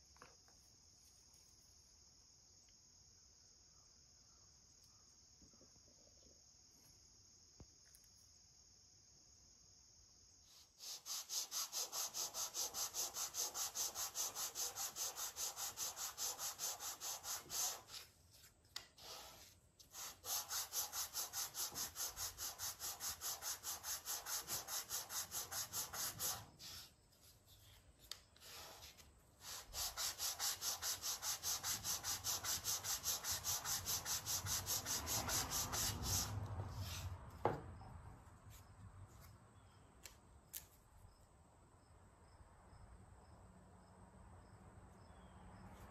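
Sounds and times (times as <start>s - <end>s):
sandpaper rubbing on wood: 10.5s - 27.8s, 28.4s - 37.1s.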